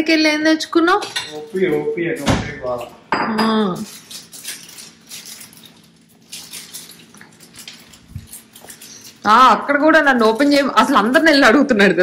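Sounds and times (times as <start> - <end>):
plastic wrapper crinkling: 3.8 - 11.4.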